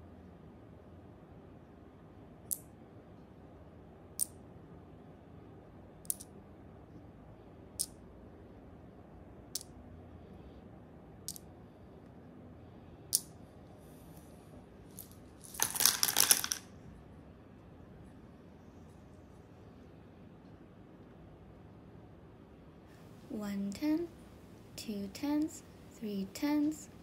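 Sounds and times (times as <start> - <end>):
tiles clattering into wooden box: 14.9 - 16.7
wooden tiles clicking: 15.0 - 16.7.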